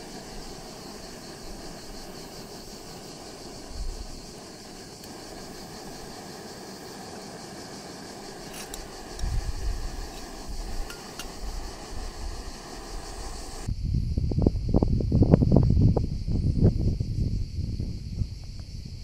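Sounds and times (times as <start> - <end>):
steady rushing hiss: 0.0 - 13.8
wind buffeting microphone: 8.3 - 19.0.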